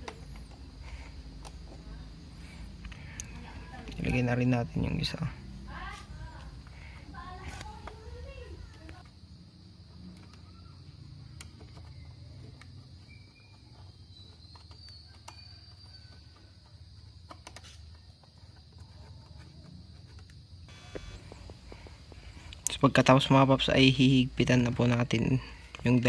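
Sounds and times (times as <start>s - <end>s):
low steady hum: 20.6s - 26.0s.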